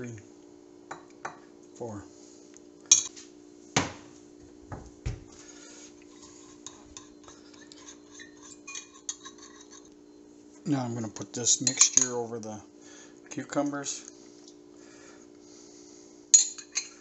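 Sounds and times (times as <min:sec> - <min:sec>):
metal spoon scraping glass bowl: 0:06.1 - 0:10.0.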